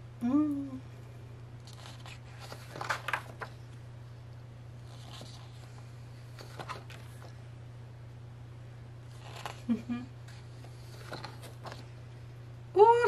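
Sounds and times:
paper pages rustling: 1.6s - 3.8s, 4.8s - 7.4s, 9.1s - 9.7s, 10.3s - 11.9s.

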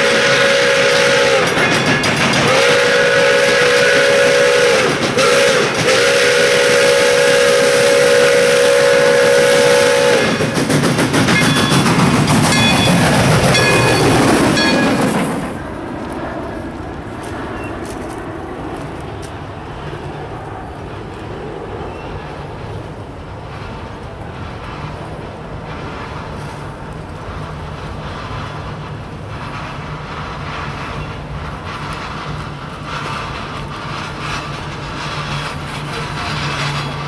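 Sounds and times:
steam locomotive whistle blasts: 0.0s - 1.6s, 2.4s - 10.6s
locomotive rumbling and clanking: 0.0s - 6.8s, 7.5s - 15.8s, 17.2s - 37.0s.

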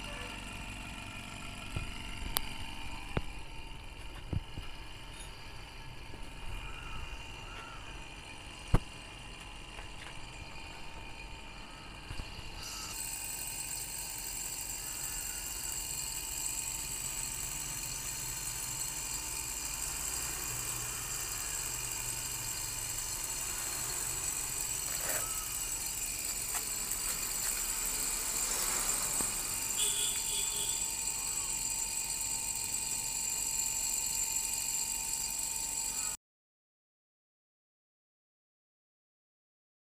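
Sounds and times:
air conditioner unit running: 0.0s - 36.2s
high hiss: 19.8s - 31.5s.

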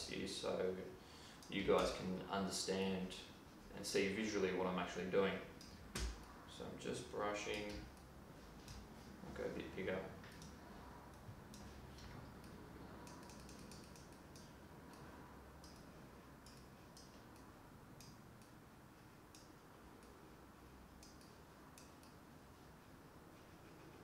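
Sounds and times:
computer mouse and keyboard clicks: 10.3s - 18.5s.

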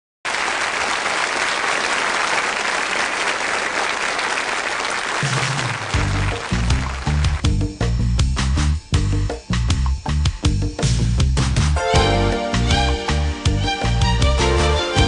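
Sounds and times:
audience applauding: 0.3s - 7.5s
music with deep bass notes: 6.0s - 15.0s.

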